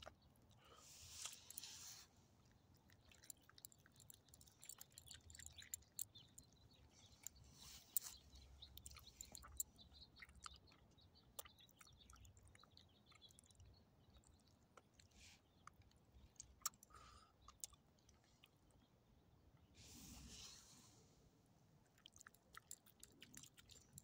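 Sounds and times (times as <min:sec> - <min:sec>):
dog chewing food: 0:02.4 - 0:06.6.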